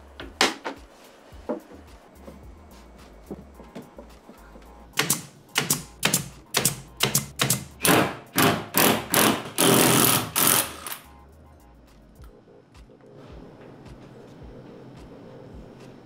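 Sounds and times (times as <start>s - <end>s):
cordless drill cutting through plywood: 7.8s - 11.0s.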